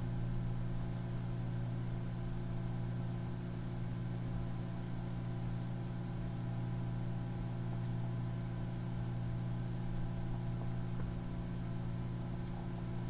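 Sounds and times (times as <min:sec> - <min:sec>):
low electrical hum: 0:00.0 - 0:13.0
faint ticks: 0:12.3 - 0:12.6.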